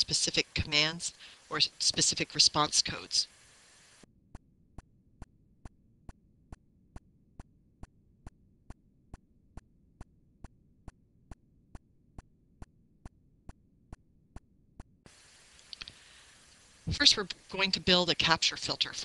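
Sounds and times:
faint low background noise: 0.0 - 4.0, 15.1 - 19.0
steady ticking: 4.3 - 15.0.

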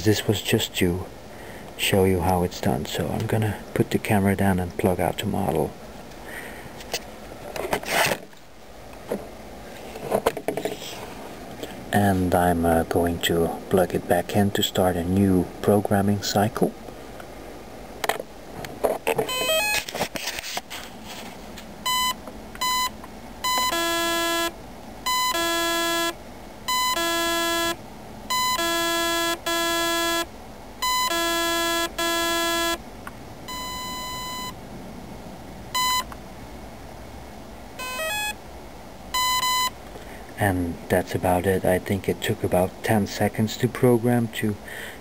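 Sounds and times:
clattering handling noise: 6.8 - 11.3
electronic programming beeps: 21.8 - 24.5, 25.1 - 32.8, 33.5 - 34.6, 35.8 - 36.1, 37.8 - 38.4, 39.2 - 39.8.

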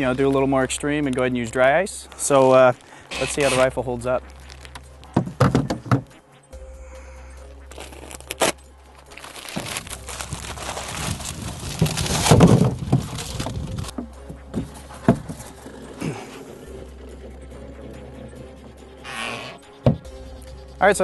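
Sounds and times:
ice scraping and clattering: 0.0 - 5.5, 7.7 - 14.0
plastic bag rustling: 2.1 - 5.5, 7.7 - 14.0
blocks knocking against cooler: 5.1 - 6.2, 11.7 - 15.5.

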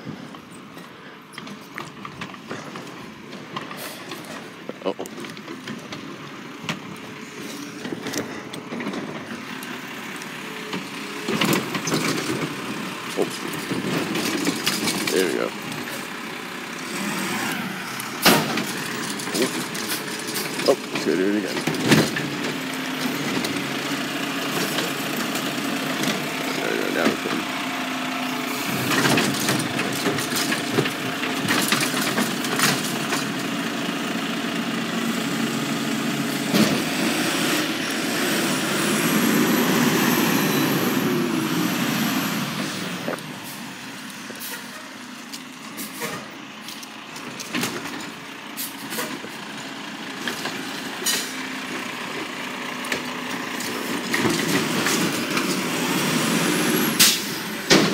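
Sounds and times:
garbage truck diesel engine droning: 0.0 - 57.9.

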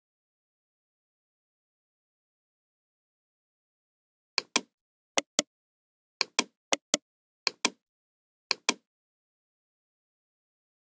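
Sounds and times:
computer mouse button clicks: 4.4 - 5.4, 6.2 - 7.8, 8.5 - 8.8.

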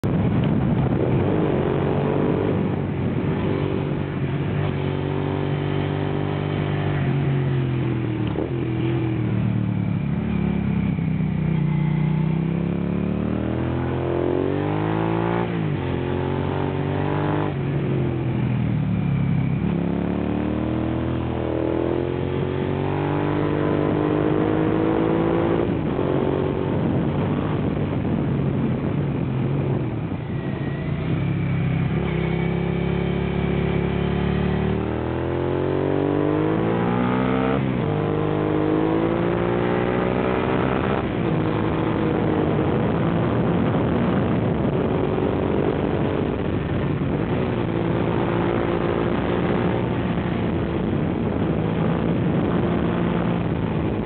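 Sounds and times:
motorcycle engine revving: 0.0 - 54.0.

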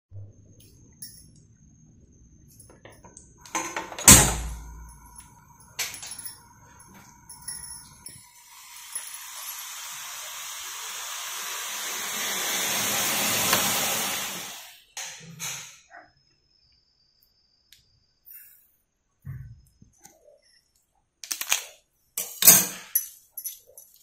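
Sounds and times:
milk hissing in saucepan: 8.2 - 14.9.

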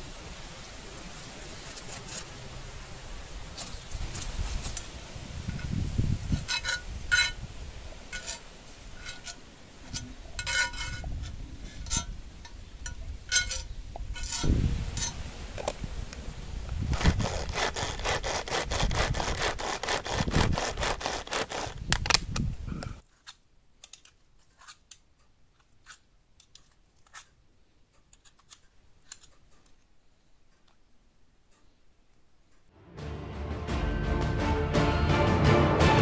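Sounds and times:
rhythmic scraping strokes: 17.0 - 21.8.

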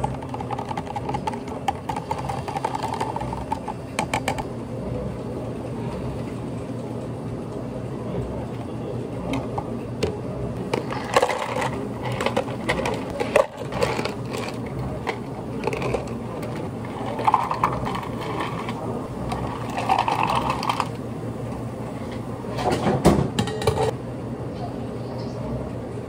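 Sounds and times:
ice cubes clinking into plastic cups: 0.0 - 4.4, 10.8 - 20.9.

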